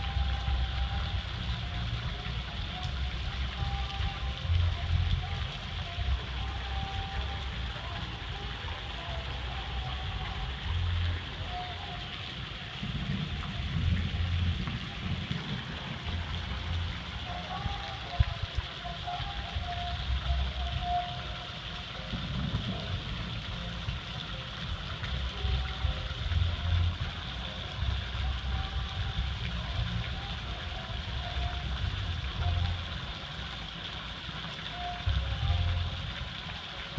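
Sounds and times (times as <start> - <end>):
fountain water splashing: 0.0 - 36.9
low rumble: 12.2 - 18.8, 22.1 - 33.2.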